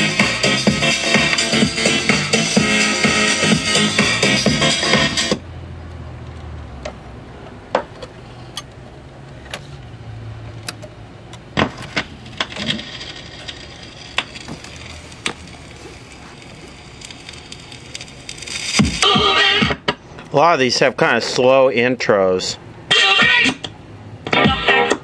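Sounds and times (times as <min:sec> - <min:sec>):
record changer clicks and clunks: 0:10.6 - 0:15.6.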